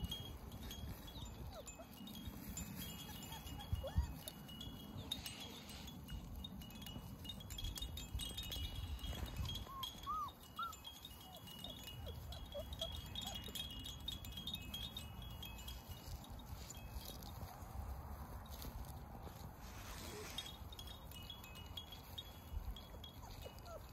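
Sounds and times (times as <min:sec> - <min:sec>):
puppies squeaking and whimpering: 0:00.0 - 0:06.4, 0:07.9 - 0:15.0, 0:19.7 - 0:20.8, 0:22.0 - 0:23.9
faint high chiming: 0:00.0 - 0:17.6.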